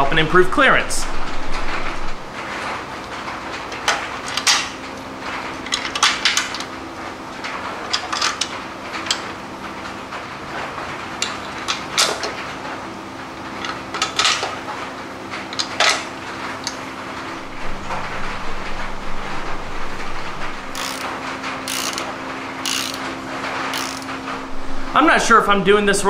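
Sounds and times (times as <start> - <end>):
steady low hum: 0.0 - 2.4, 15.5 - 26.0.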